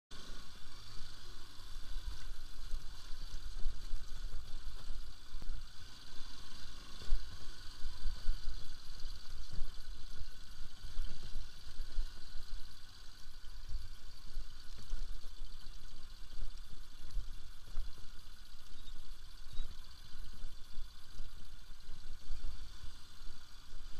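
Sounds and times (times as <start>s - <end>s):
motorcycle engine running: 0.1s - 23.9s
steady hiss: 0.1s - 23.9s.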